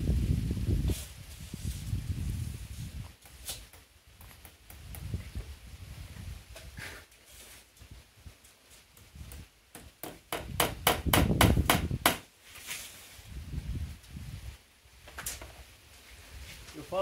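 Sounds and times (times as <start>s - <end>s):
hammer striking nail: 9.7s - 12.2s.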